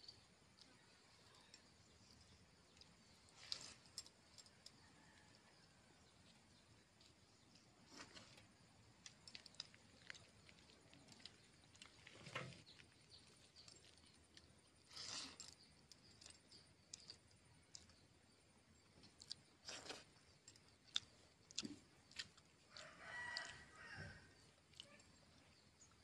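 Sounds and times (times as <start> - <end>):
chewing: 2.7 - 8.4, 9.0 - 18.1, 18.8 - 26.0.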